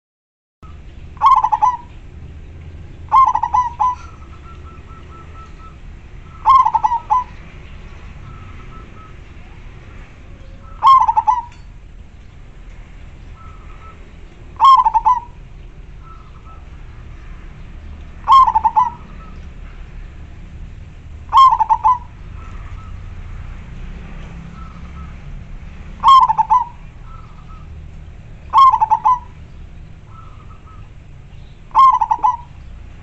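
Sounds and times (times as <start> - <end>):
dove cooing: 1.2 - 2.2, 3.0 - 7.5, 8.2 - 11.7, 13.4 - 16.8, 18.2 - 19.4, 21.3 - 23.0, 26.0 - 27.7, 28.5 - 31.0, 31.7 - 32.6.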